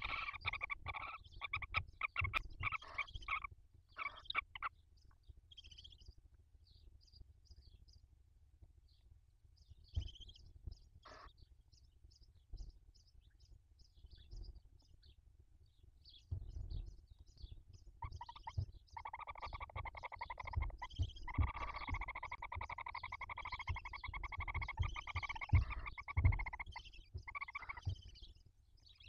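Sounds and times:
owl buzzy chittering call: 0.0s - 4.7s, 11.0s - 11.3s, 18.0s - 28.2s
rustling with soft knocks: 14.0s - 28.7s
high chirps: 18.0s - 28.2s.

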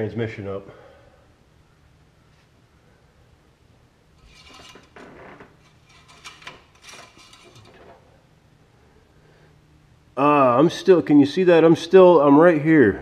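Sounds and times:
faint steady low hum: 0.0s - 13.0s
metallic clinks and scrapes: 4.2s - 5.0s, 5.6s - 8.0s.

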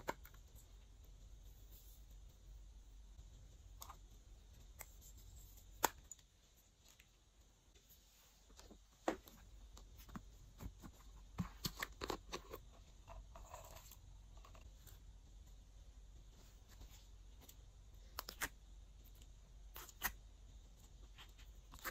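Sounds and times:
soft rustle: 6.4s - 11.8s, 14.6s - 17.6s.

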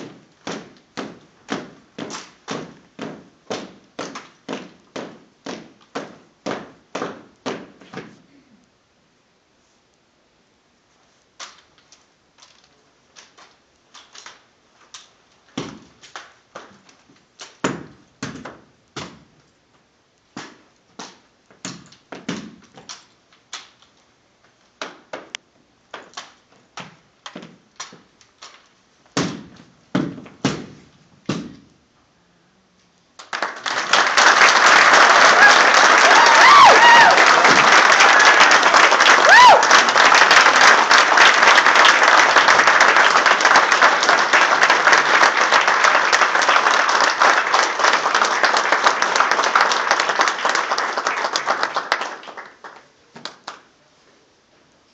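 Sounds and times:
audience applause: 33.2s - 52.9s.

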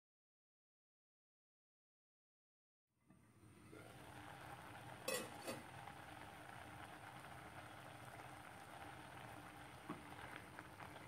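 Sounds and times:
curry bubbling with pops: 3.6s - 11.0s.

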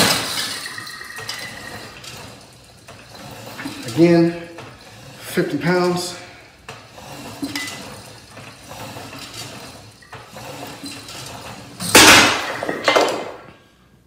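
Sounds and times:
weight plates clinking: 0.0s - 4.5s.

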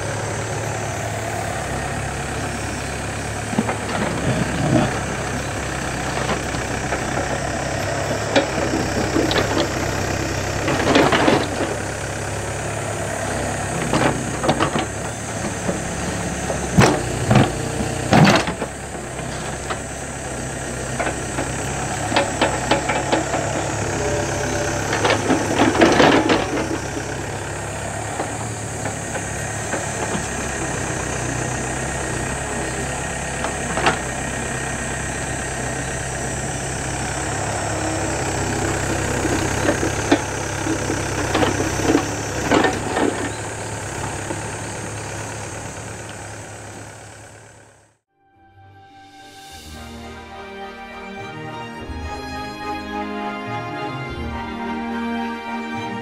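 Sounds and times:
diesel engine running: 0.0s - 48.1s, 49.2s - 56.0s
bucket clanking and scraping: 21.0s - 27.1s.

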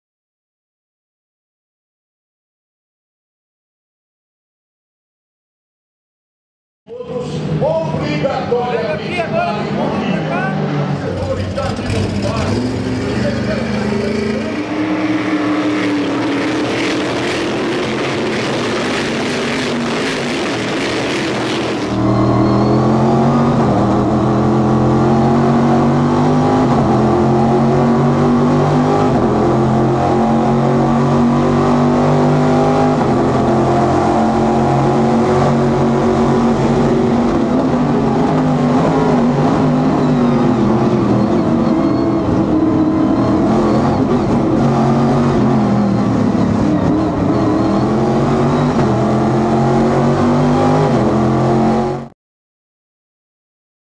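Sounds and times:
race car engine running: 10.9s - 26.1s.

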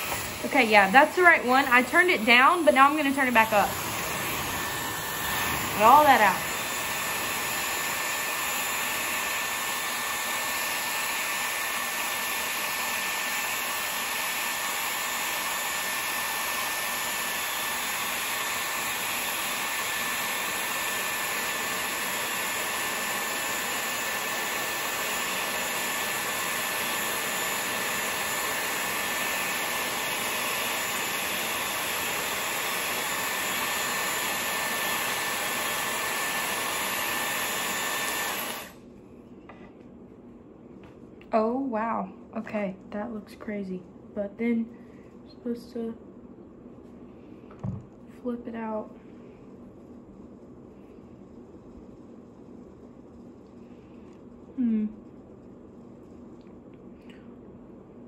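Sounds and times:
high motor whine: 0.0s - 20.8s
hair styler blowing air: 0.0s - 38.8s.

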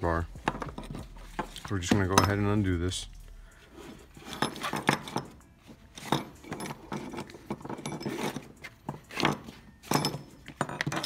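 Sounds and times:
metal hook clinking: 4.2s - 8.6s, 9.2s - 11.0s.

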